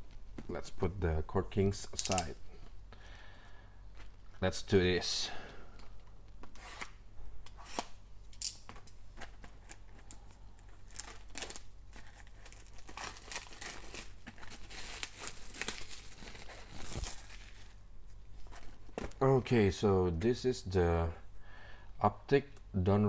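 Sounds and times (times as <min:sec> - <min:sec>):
plastic wrap crinkling and tearing: 0:09.1 - 0:17.8.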